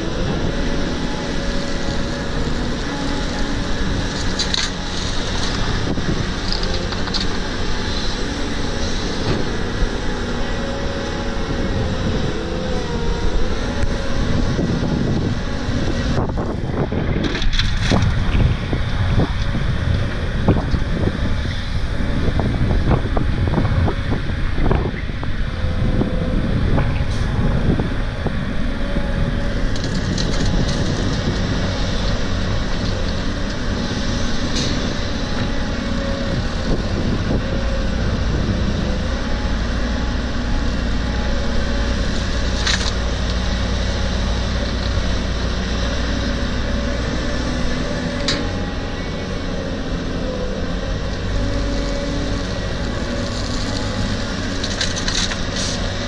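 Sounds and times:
excavator engine and hydraulic drone: 0:00.0 - 0:56.0.

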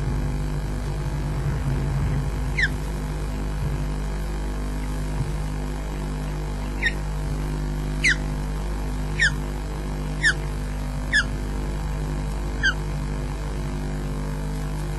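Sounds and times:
microphone hum and hiss: 0:00.0 - 0:14.9
osprey whistled calls: 0:02.5 - 0:02.8, 0:06.8 - 0:07.0, 0:08.0 - 0:08.2, 0:09.2 - 0:09.4, 0:10.2 - 0:10.4, 0:11.1 - 0:11.3, 0:12.6 - 0:12.8.

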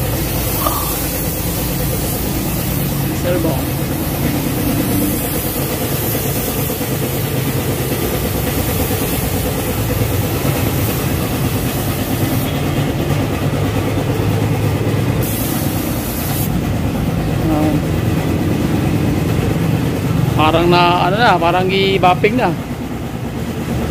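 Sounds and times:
paint spray gun hissing: 0:00.0 - 0:12.9, 0:15.2 - 0:16.6
low engine-like hum: 0:00.0 - 0:23.9.

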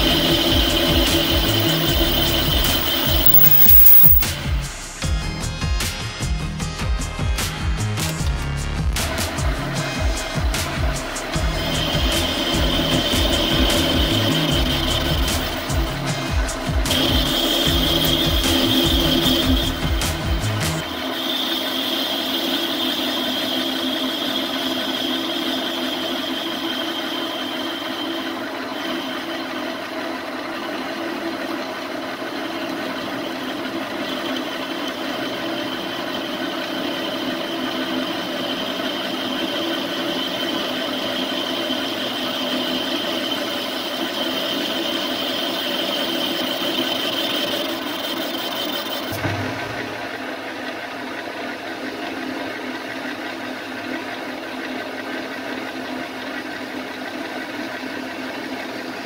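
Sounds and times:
metal lathe cutting: 0:00.0 - 0:04.4, 0:09.1 - 0:59.0
high steady whine: 0:00.0 - 0:04.8, 0:09.3 - 0:28.3, 0:33.5 - 0:52.2.

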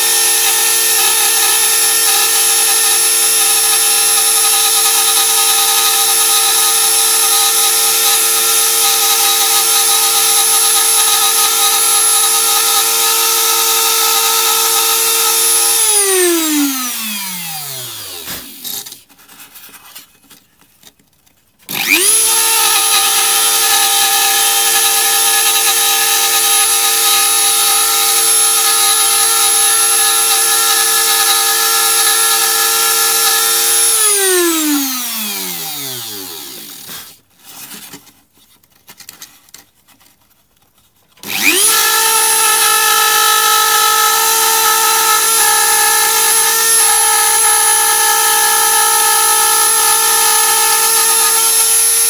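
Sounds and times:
rotary tool whining: 0:10.2 - 0:19.0, 0:21.7 - 0:37.2, 0:41.2 - 0:52.0.

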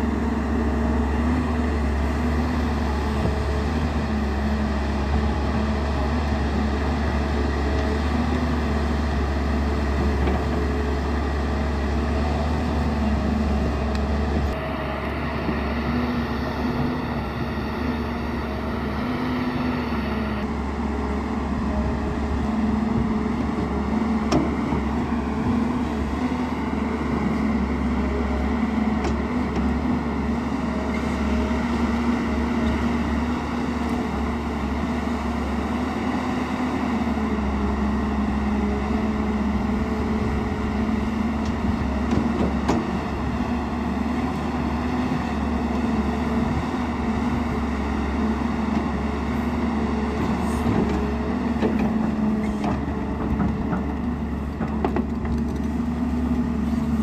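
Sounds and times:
excavator diesel engine droning: 0:00.0 - 0:57.0.

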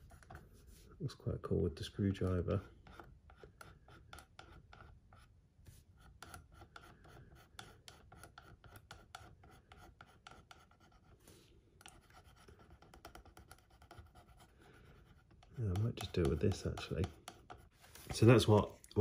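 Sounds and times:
screwdriver scratching: 0:02.2 - 0:05.3.

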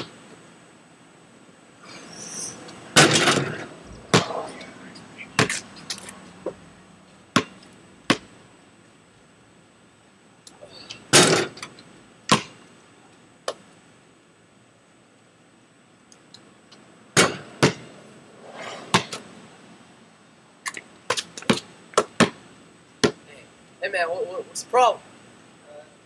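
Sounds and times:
basketball bouncing on concrete: 0:03.0 - 0:04.5, 0:05.4 - 0:05.6, 0:07.3 - 0:08.3, 0:12.3 - 0:12.6, 0:17.2 - 0:17.9, 0:18.9 - 0:19.2, 0:21.4 - 0:22.4, 0:23.0 - 0:23.3.

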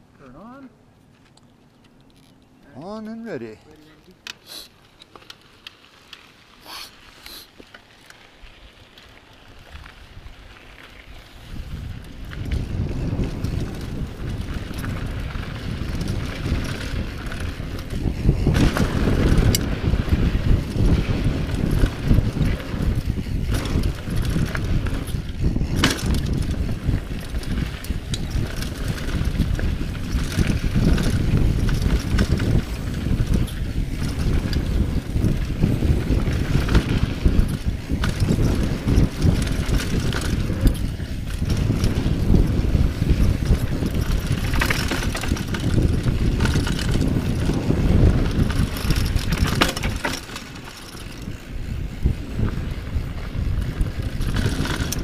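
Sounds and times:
tyres rumbling on dirt trail: 0:00.0 - 0:55.0
wind buffeting microphone: 0:09.4 - 0:55.0
bike knocking over bumps: 0:12.5 - 0:51.4.

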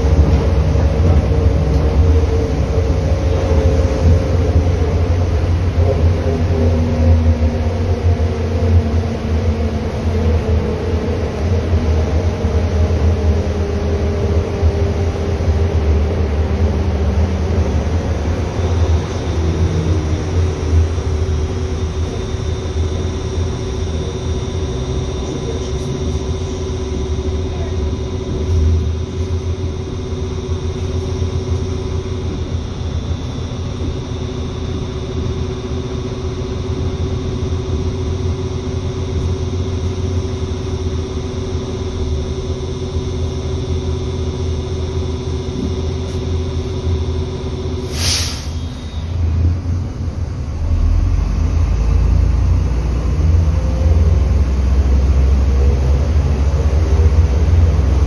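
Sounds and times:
bus engine and road rumble: 0:00.0 - 0:58.0
faint steady whine: 0:00.0 - 0:58.0
sharp burst of air hiss: 0:47.8 - 0:49.0.

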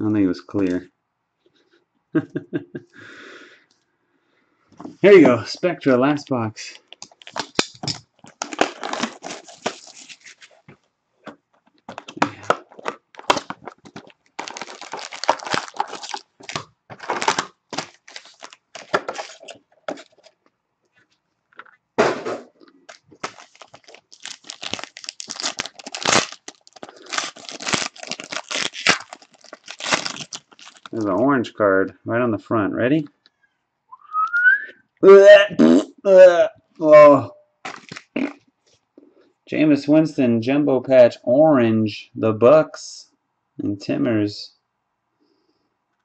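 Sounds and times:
packaging crinkling and tearing: 0:06.9 - 0:10.7, 0:11.7 - 0:20.4, 0:22.7 - 0:31.2, 0:37.6 - 0:38.3
foil wrapper tearing open: 0:07.0 - 0:10.6, 0:11.9 - 0:20.3, 0:22.8 - 0:31.1, 0:37.7 - 0:38.3.

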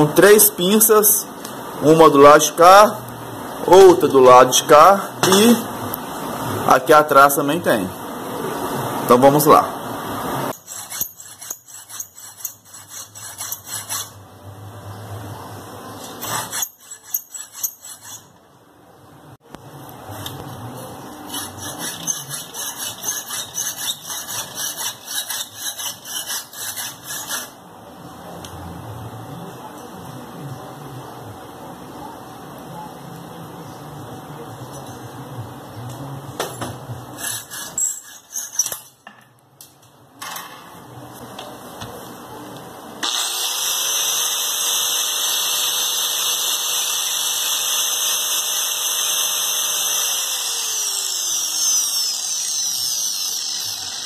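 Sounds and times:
hacksaw rasping on metal: 0:10.5 - 0:14.2, 0:16.1 - 0:18.4, 0:21.2 - 0:27.6, 0:37.2 - 0:38.9.

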